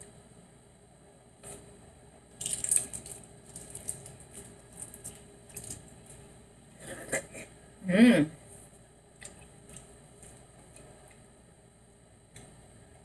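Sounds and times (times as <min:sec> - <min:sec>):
egg shell cracking by hand: 0:02.4 - 0:05.8.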